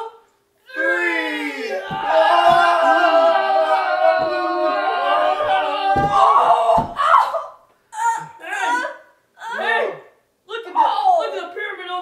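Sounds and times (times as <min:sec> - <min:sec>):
low thumps: 0:01.8 - 0:03.3.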